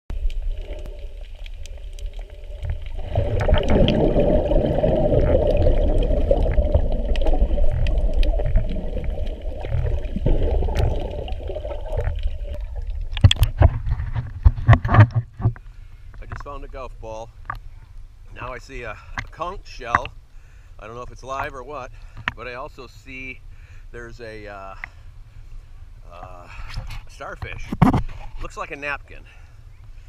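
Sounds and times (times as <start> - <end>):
muffled underwater rush of water: 0.1 - 20.1.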